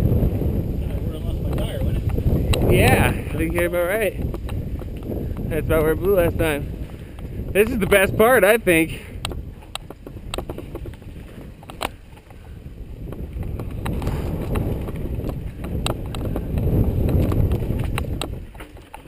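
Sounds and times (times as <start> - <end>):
wind rumble: 0.0 - 19.0
bike clicks and knocks: 3.3 - 5.5, 9.2 - 19.0.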